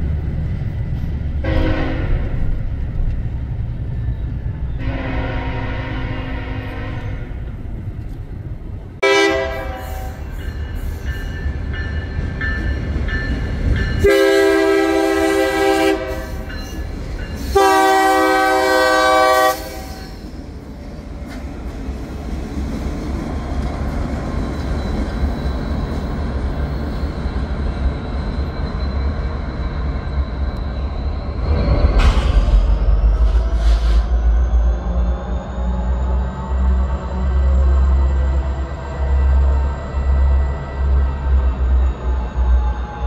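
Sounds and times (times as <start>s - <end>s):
locomotive horn blasts: 1.4s - 2.3s, 4.8s - 7.4s, 9.0s - 10.2s, 14.0s - 16.5s, 17.5s - 20.2s.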